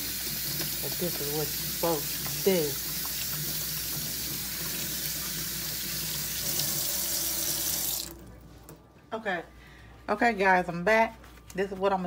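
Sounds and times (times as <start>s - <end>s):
faucet running into sink: 0.0s - 8.2s.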